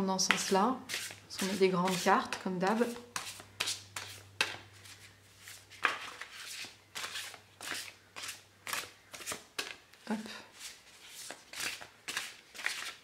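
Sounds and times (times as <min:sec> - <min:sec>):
cards being shuffled: 0:03.2 - 0:09.8, 0:10.6 - 0:13.0.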